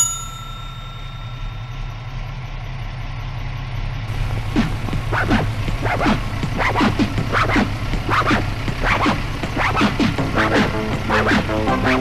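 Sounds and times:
small bell ringing: 0.0 - 2.3
engine idling: 0.2 - 12.0.

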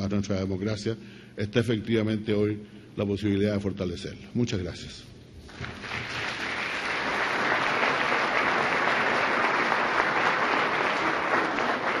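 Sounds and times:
audience applauding: 5.6 - 12.0.

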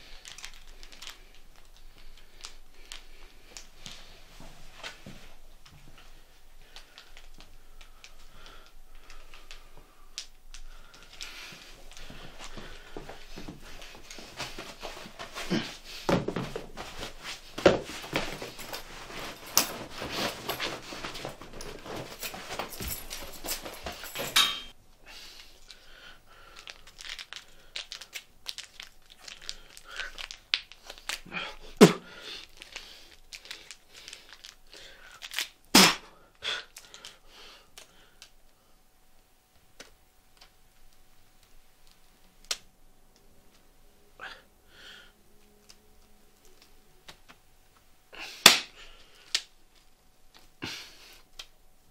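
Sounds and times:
rustling and crinkling: 0.0 - 35.6.

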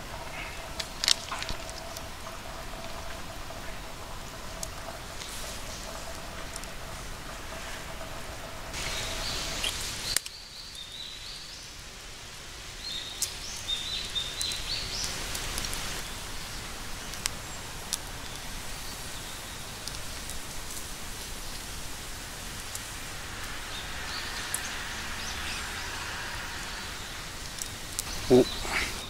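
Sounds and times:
sharp pops and crackles: 0.0 - 11.2, 12.8 - 26.0, 27.0 - 29.0
bacon sizzling: 8.7 - 11.2, 12.0 - 28.8.

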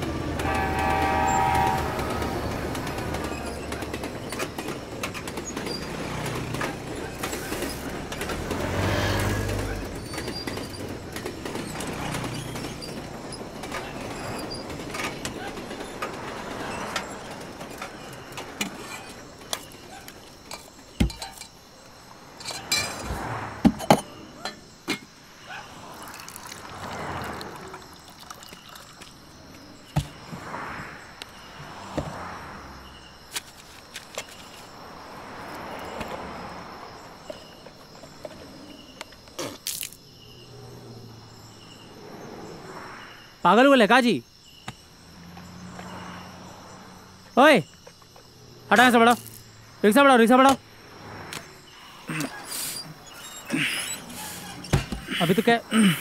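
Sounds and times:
vehicle horn: 0.0 - 3.8
vehicles passing: 0.0 - 56.0.

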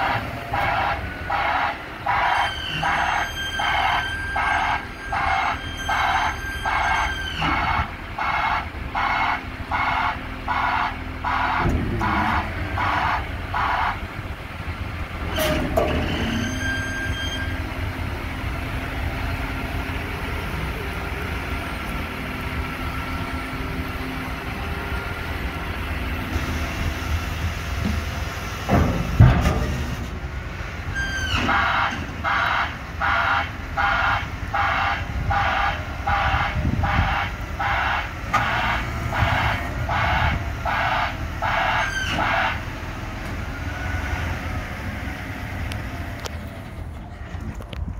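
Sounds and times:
reversing alarm beeping: 0.0 - 14.2, 15.3 - 17.8, 30.9 - 42.8
diesel engine running: 0.0 - 47.9.

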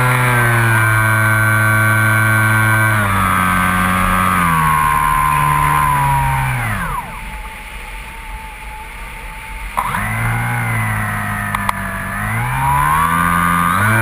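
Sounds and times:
air noise: 0.0 - 14.0
electric motor and propeller whining: 0.0 - 14.0
throttle clicks: 9.8 - 11.8.

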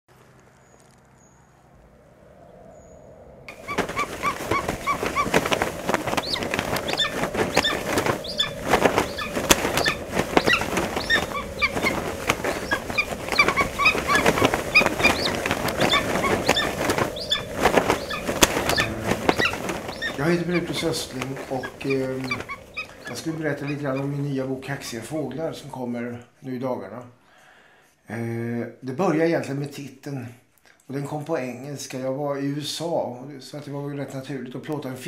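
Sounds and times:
flock of birds calling: 3.5 - 25.2.

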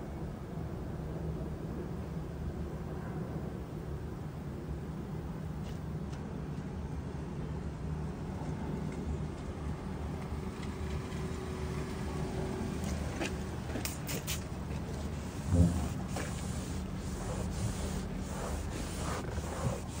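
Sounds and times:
steady low drone: 15.2 - 20.0.

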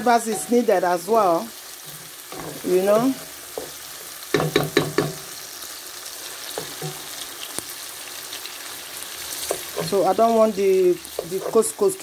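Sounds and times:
food sizzling in a frying pan: 0.0 - 12.0
spatula knocking on pan: 2.4 - 5.3.

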